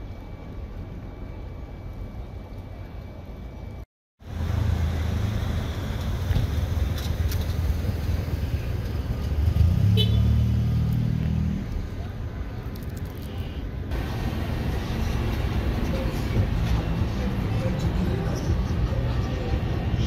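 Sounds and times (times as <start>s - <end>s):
vehicle engine running: 4.2s - 12.0s, 13.9s - 20.0s.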